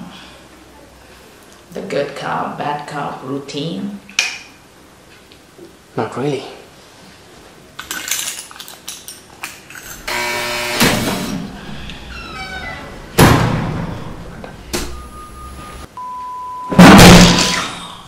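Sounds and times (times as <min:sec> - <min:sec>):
short buzz: 0:10.0 - 0:15.8
heavy thuds and slams: 0:10.6 - 0:15.2, 0:16.8 - 0:17.6
steady electronic beep: 0:13.8 - 0:16.8.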